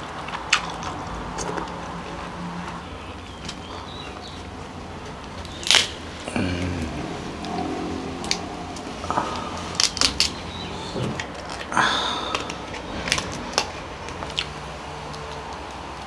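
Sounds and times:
shell cracking: 0:05.6 - 0:06.0.

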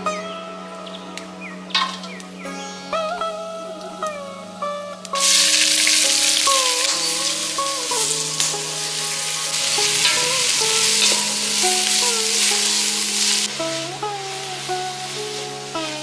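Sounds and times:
onions sizzling in hot oil: 0:05.1 - 0:13.5.

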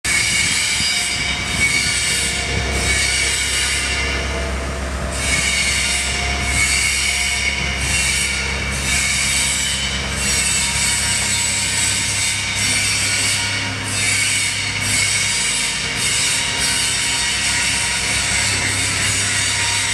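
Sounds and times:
diesel engine running: 0:00.0 - 0:19.9
high-pitched metallic squealing: 0:00.1 - 0:19.9.

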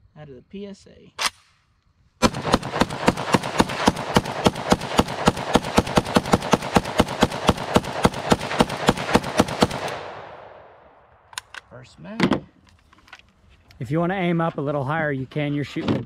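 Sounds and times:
rifle firing rapid shots: 0:02.2 - 0:10.7.

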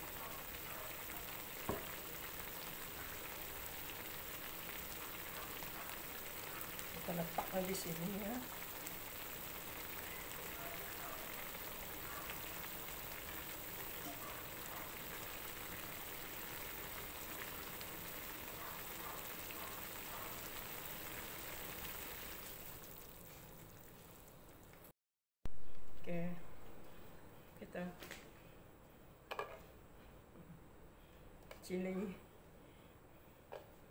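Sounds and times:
broth bubbling in a wok: 0:00.0 - 0:24.9.

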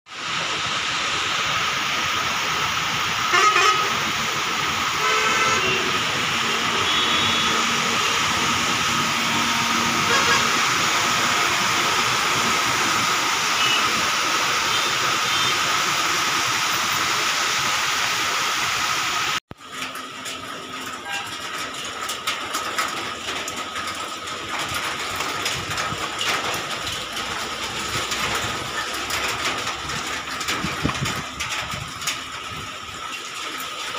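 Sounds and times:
steady rain: 0:00.1 - 0:33.9
traffic on wet road: 0:00.1 - 0:33.9
vehicle horns honking: 0:03.3 - 0:04.0, 0:05.0 - 0:08.2, 0:09.3 - 0:10.7, 0:13.6 - 0:14.0, 0:14.6 - 0:15.7, 0:21.0 - 0:21.4.

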